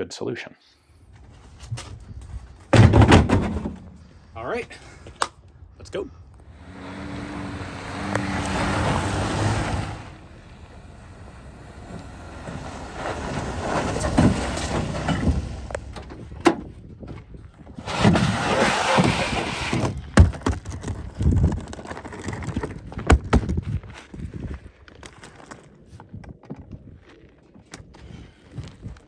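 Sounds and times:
tailgate clunks and knocks: 2.7s - 3.9s
pickup truck driving on dirt: 6.5s - 23.4s.

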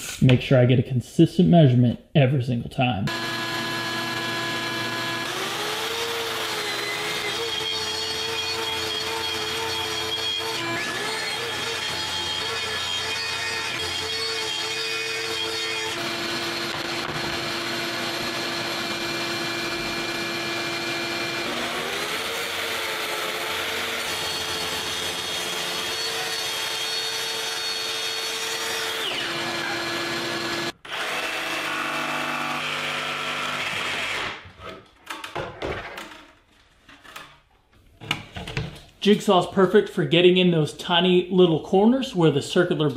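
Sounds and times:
track saw cutting plywood: 3.1s - 34.5s.

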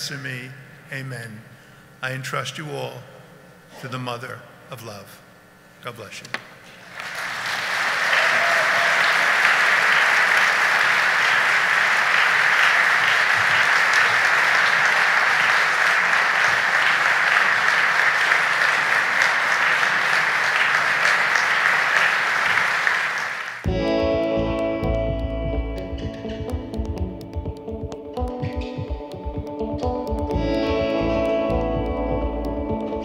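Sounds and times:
crowd applause: 6.8s - 23.7s.

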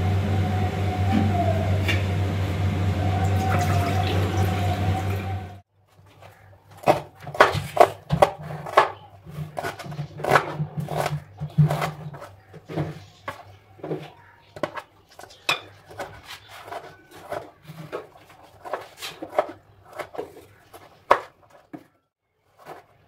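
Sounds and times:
loud hum with wavering tone: 0.0s - 5.6s
knife chopping onion on board: 6.8s - 12.7s, 14.6s - 21.8s.

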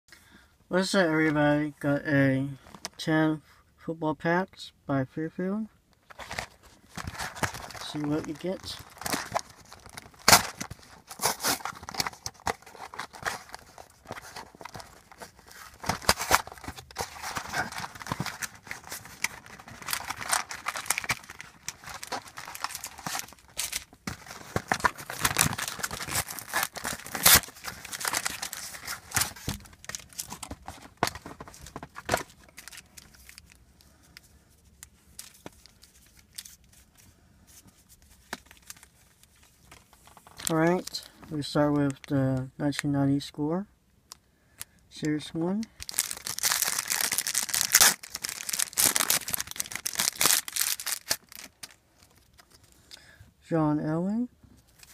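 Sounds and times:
packaging tearing and crinkling: 6.1s - 33.6s, 45.8s - 52.7s.

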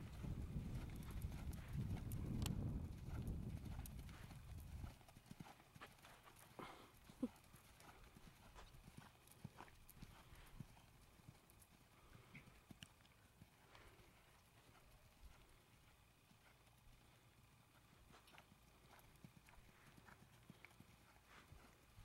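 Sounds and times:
horse hoofbeats on sand: 0.0s - 12.5s.

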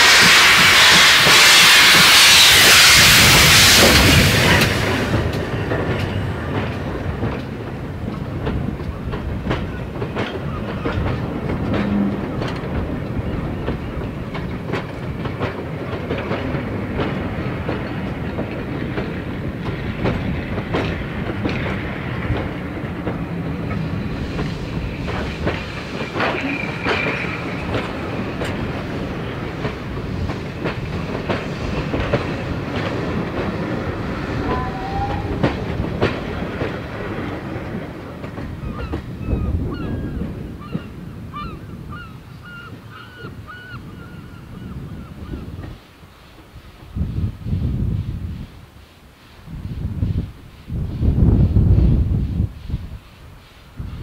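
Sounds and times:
train wheels clicking over rail joints: 0.0s - 41.2s.

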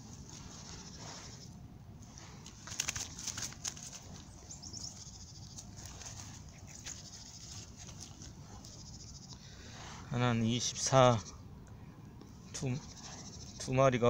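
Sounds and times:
dry straw crackling and rustling: 0.0s - 10.0s
faint outdoor background: 0.0s - 14.0s.

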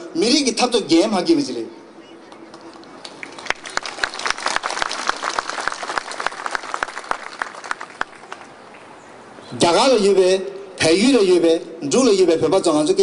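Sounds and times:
audience applauding: 3.0s - 8.5s.

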